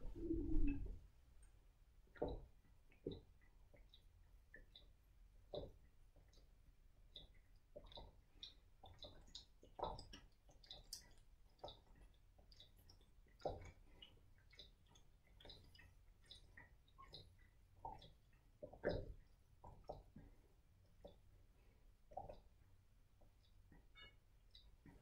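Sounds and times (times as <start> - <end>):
person gulping water: 0.1 - 0.9.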